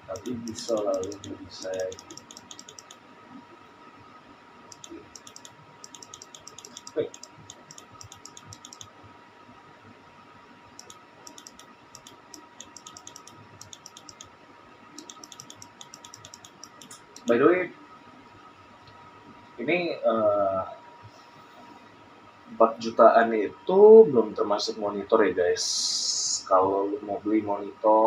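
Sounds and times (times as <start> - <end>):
computer mouse clicking: 0.0 - 3.0, 4.7 - 8.9, 10.8 - 14.3, 15.0 - 17.4
faint electrical hum: 0.0 - 28.0.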